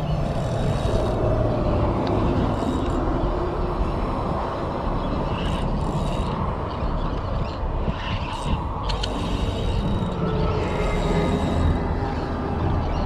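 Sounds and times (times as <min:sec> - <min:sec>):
spinning reel winding: 0:00.0 - 0:03.8, 0:05.1 - 0:06.9, 0:07.8 - 0:12.4
low rumbling noise: 0:00.0 - 0:13.0.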